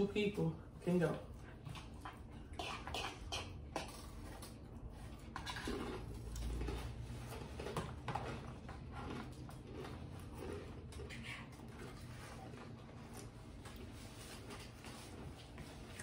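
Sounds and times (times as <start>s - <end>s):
people chewing: 1.2s - 16.0s
forks scraping bowls and plates: 5.3s - 9.1s.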